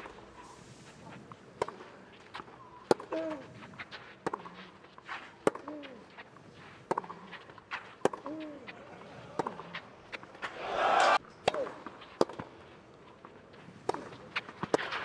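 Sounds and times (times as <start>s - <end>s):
rackets striking tennis ball: 6.6s - 12.7s, 13.8s - 15.0s.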